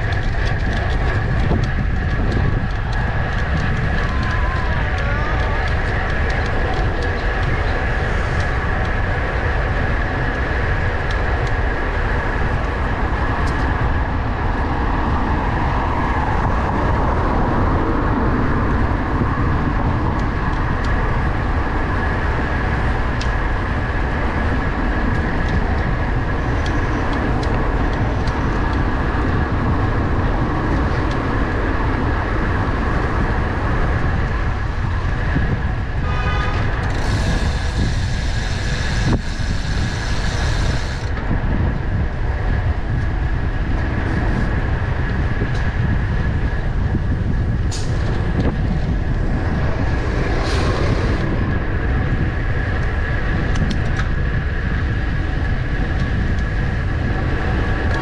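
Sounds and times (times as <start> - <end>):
motor vehicles: 0.0 - 58.0
wind buffeting microphone: 0.0 - 58.0.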